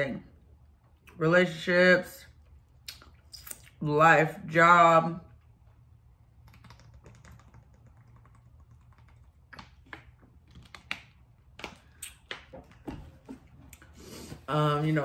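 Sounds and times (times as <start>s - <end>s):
soft mouth clicks and smacks: 2.8s - 3.8s.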